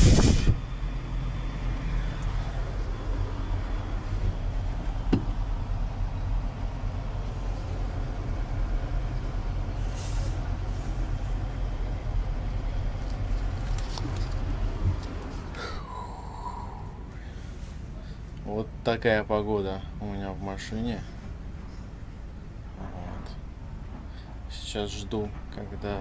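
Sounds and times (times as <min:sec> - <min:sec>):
short hiss: 0:00.0 - 0:00.6, 0:09.8 - 0:10.4
diesel truck engine idling: 0:00.0 - 0:26.0
single knock: 0:05.1 - 0:05.4.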